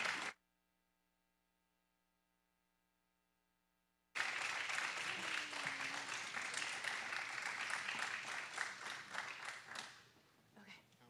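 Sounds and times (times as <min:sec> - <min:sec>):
audience applauding: 0:00.0 - 0:00.3, 0:04.2 - 0:10.2.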